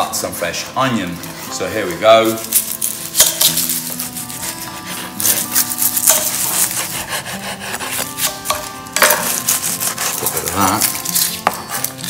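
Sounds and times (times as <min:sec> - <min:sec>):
knives chopping on cutting boards: 0:05.2 - 0:12.0.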